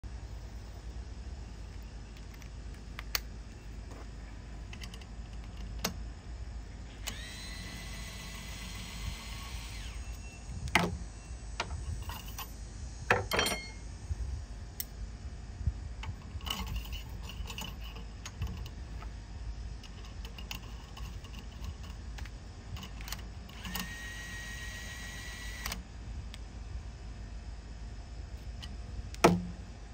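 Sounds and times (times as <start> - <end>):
electric screwdriver whirring: 7.0 - 10.2, 23.5 - 25.8
small metal parts clinking: 11.8 - 13.8.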